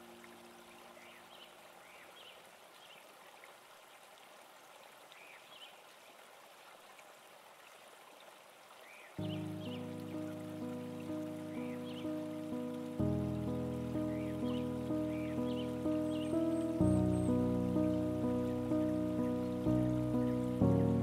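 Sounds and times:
steady water rushing: 0.0 - 21.0
background music: 9.2 - 21.0.

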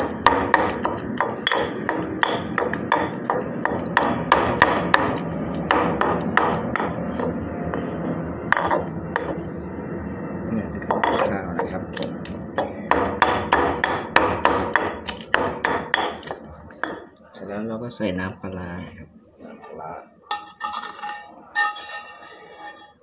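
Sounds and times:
pestle pounding in a mortar: 0.0 - 9.5, 10.8 - 17.1.

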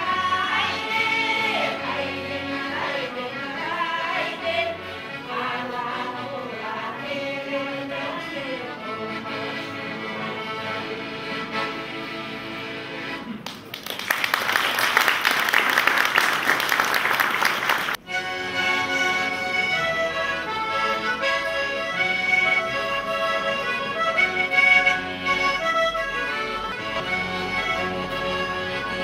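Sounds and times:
accordion playing folk tune: 0.0 - 13.5, 17.4 - 29.0
audience clapping: 13.4 - 18.0.

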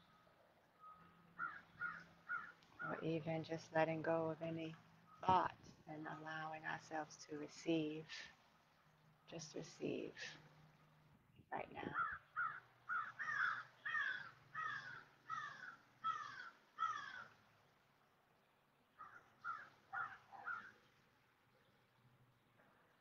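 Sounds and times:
bird calling: 0.0 - 3.0, 11.9 - 17.4, 19.0 - 21.0.

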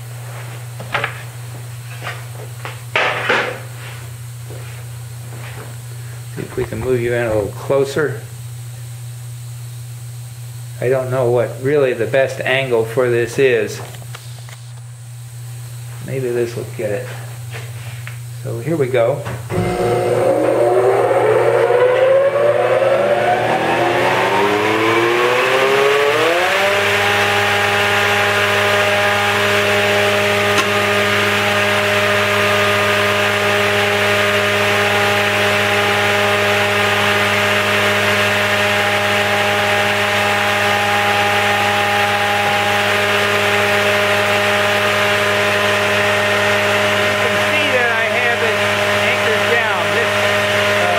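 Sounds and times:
spindle moulder cutter head whine: 19.5 - 50.9.

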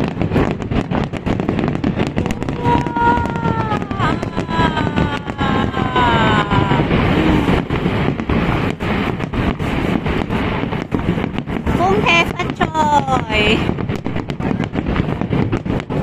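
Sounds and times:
firework shells bursting: 0.0 - 16.0.

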